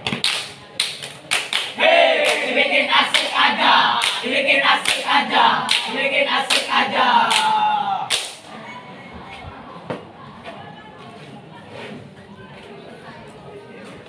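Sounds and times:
sharp claps on a beat: 0.0s - 8.5s
group chanting in unison: 1.7s - 8.4s.

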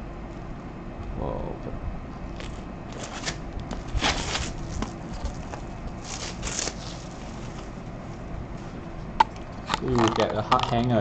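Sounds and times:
plastic wrapping crackling rustles: 2.4s - 7.7s.

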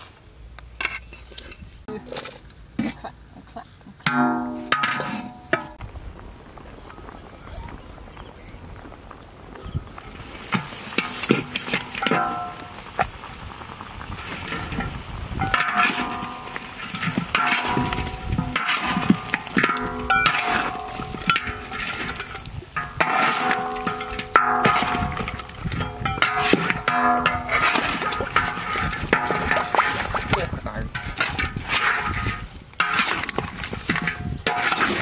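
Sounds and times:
metal spatula scraping a wok: 4.1s - 5.8s, 14.2s - 35.0s.

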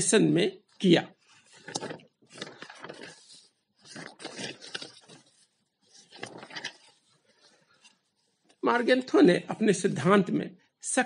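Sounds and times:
faint rustling and scraping: 1.2s - 8.6s.

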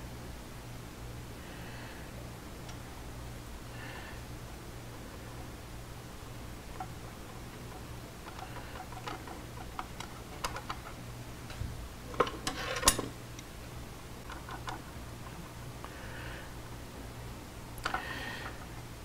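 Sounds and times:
small metal clicks and taps: 7.6s - 11.0s.

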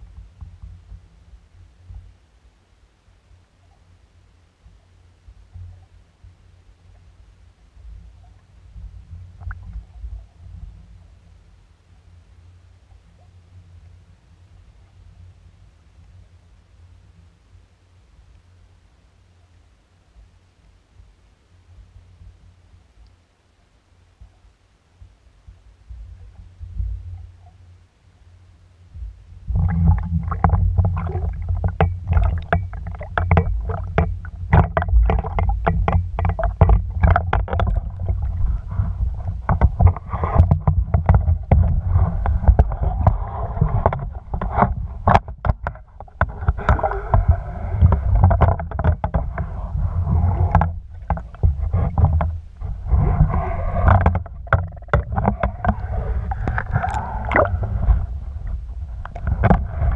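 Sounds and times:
water sloshing: 29.5s - 59.9s.

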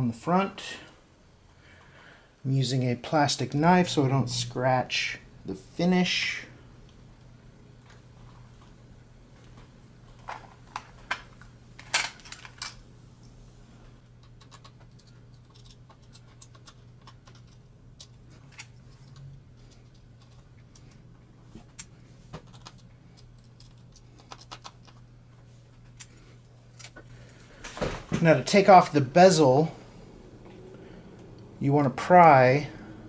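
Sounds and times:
low steady hum: 0.0s - 33.0s
plastic parts clicking and tapping: 21.7s - 25.0s.

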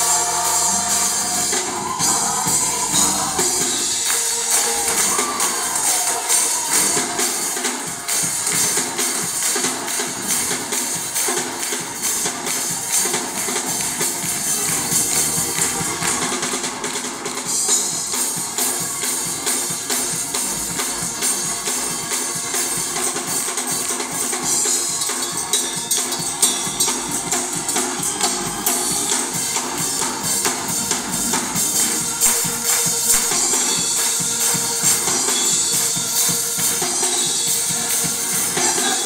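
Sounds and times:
gospel choir singing: 0.0s - 7.8s
bright high percussion: 0.0s - 39.0s
drum kit: 0.0s - 39.0s
keyboards: 0.0s - 39.0s.

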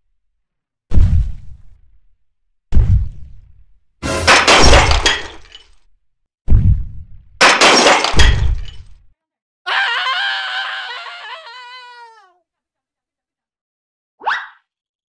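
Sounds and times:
crash and breaking glass: 4.1s - 5.8s, 7.4s - 9.0s.

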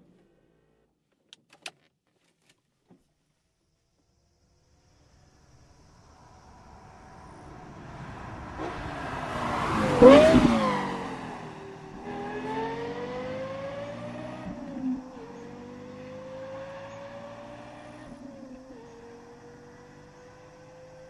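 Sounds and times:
sports car accelerating: 5.8s - 21.0s.

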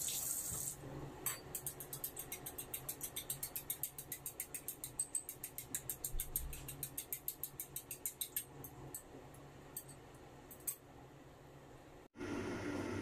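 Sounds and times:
chopsticks clicking against bowl: 1.6s - 9.1s.

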